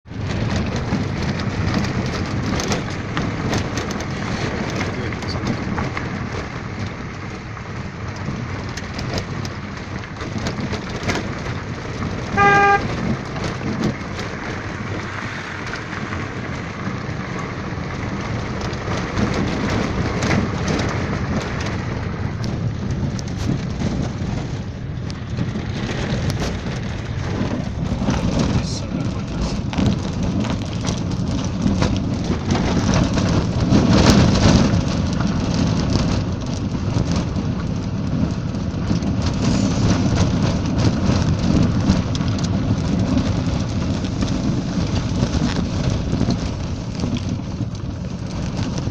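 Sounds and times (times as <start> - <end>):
car engine and tyre rumble: 0.0 - 48.9
small clicks and rattles: 0.1 - 48.9
car horn toot: 12.3 - 13.0.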